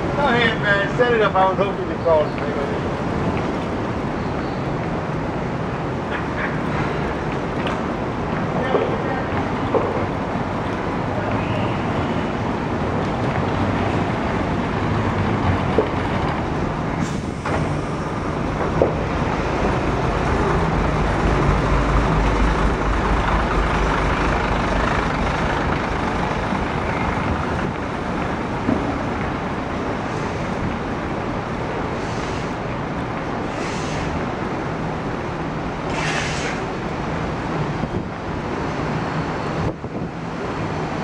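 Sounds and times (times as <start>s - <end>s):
city street traffic: 0.0s - 41.0s
deep engine rumble: 6.8s - 38.2s.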